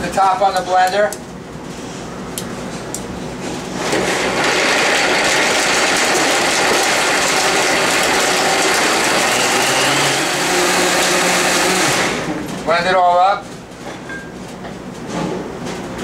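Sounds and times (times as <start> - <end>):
countertop blender running: 3.8 - 12.6.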